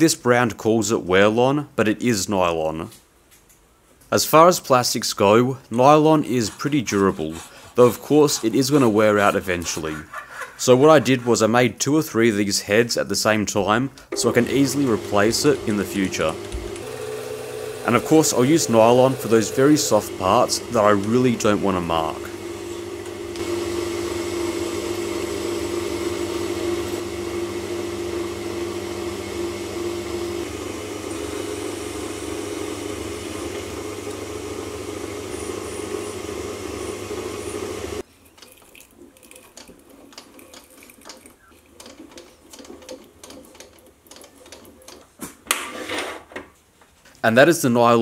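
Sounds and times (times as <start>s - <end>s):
metal lathe motor hum: 14.2s - 38.0s.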